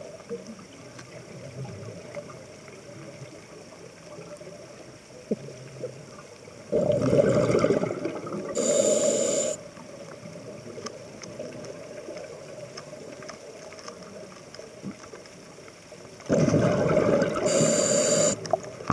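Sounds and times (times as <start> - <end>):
exhaled bubbles rumbling underwater: 0.0 - 18.9
faint water hiss: 0.0 - 18.9
regulator hiss: 8.6 - 9.6, 17.4 - 18.5.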